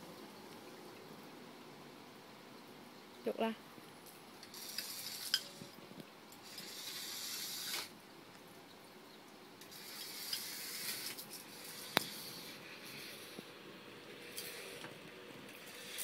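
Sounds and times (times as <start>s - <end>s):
toy car motor whirring: 4.4s - 5.7s, 6.4s - 7.9s, 9.6s - 13.4s, 15.6s - 16.0s.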